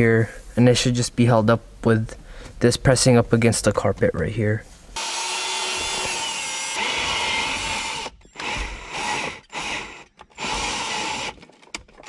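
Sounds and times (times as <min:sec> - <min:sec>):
cordless drill motor whining: 0:05.0 - 0:11.5.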